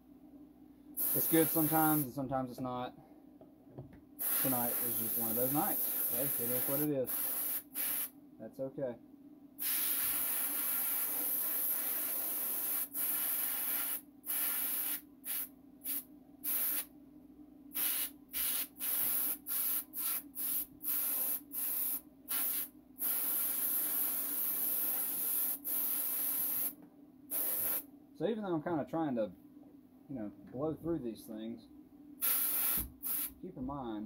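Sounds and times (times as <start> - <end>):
steady low hum: 0.0 - 9.6
paint sprayer hissing: 1.0 - 2.1, 4.2 - 8.1, 9.6 - 16.9, 17.8 - 27.8, 32.2 - 33.4.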